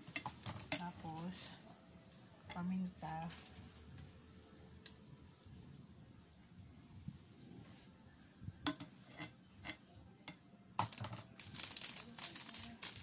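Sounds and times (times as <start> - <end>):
sachet crinkling: 10.8 - 13.0.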